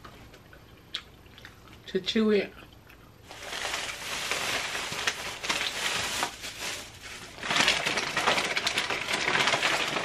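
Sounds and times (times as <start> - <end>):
food packaging crinkling: 3.2 - 10.0.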